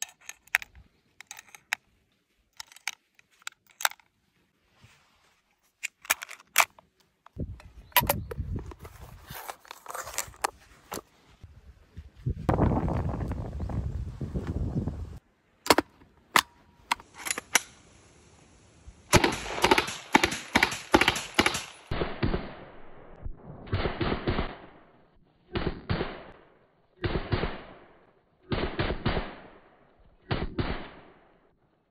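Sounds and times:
submachine gun firing: 19.1 - 22.7.

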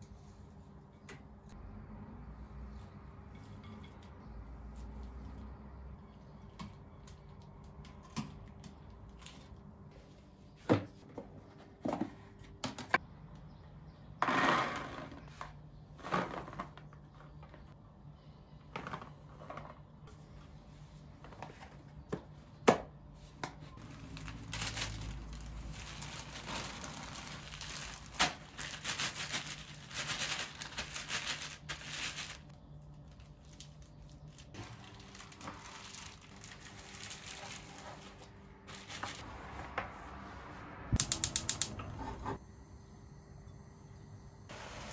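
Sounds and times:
plastic bag crinkling: 23.8 - 39.2.

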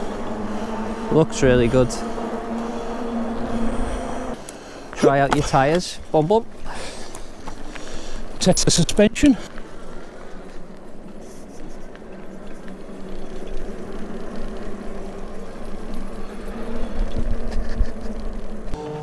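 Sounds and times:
electric bike motor hum: 0.0 - 5.0, 6.5 - 19.0
tyres rolling over rough ground: 4.3 - 19.0.

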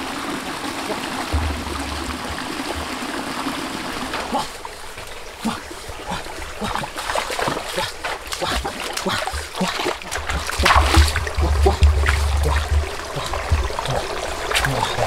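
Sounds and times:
stream trickling: 0.0 - 15.0
splashes of wading feet: 0.7 - 15.0
feet knocking on wet stones: 1.3 - 3.4, 6.6 - 15.0
low rumble: 1.4 - 3.1, 10.6 - 14.0.

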